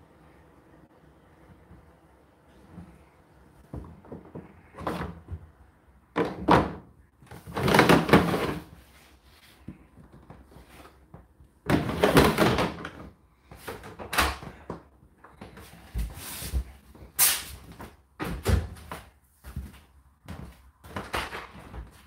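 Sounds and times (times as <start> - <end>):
plastic filter knocking and rustling: 3.6 - 5.5, 6.1 - 8.8, 9.6 - 14.8.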